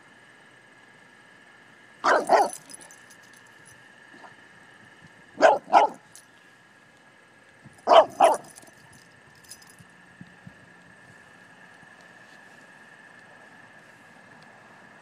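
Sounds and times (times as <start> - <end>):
dog barking: 2.0 - 2.8, 5.4 - 6.0, 7.8 - 8.6.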